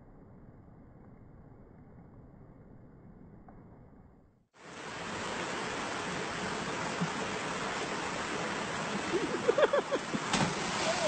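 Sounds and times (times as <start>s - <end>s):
creek water rushing: 4.6s - 11.0s.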